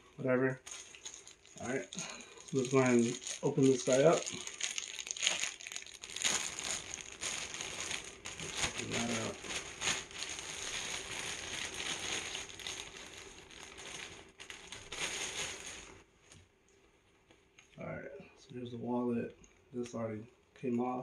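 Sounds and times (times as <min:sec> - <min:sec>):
packaging crinkling and rustling: 0:00.6 - 0:16.0.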